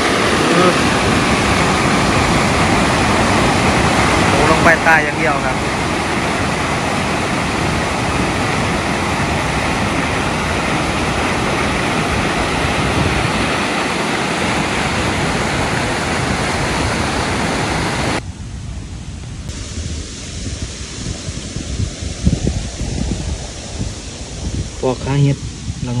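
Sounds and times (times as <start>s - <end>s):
stream water rushing: 0.0s - 18.2s.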